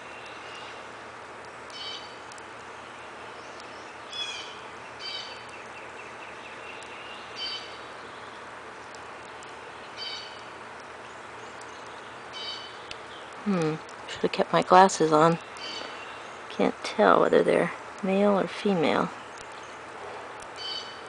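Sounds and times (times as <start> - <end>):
small bird chirping: 1.7 - 8.5, 9.7 - 13.9, 15.2 - 16.5, 20.6 - 21.0.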